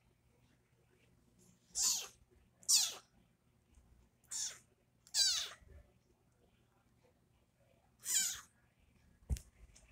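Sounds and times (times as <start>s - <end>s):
kitten mewing: 1.8s - 3.1s, 4.3s - 5.6s, 8.0s - 8.5s.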